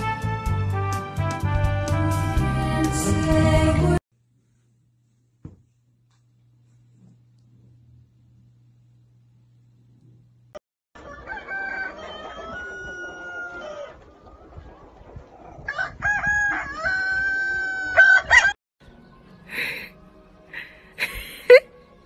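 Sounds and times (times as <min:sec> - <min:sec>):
rooster crowing: 0:11.0 - 0:14.0, 0:15.7 - 0:18.6.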